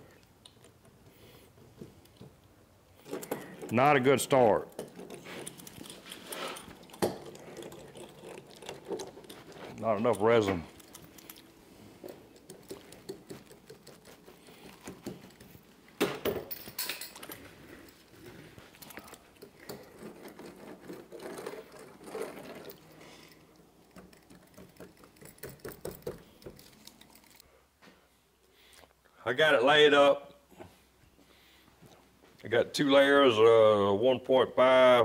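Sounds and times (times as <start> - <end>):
roller clicking and rattling: 18.9 - 23.0.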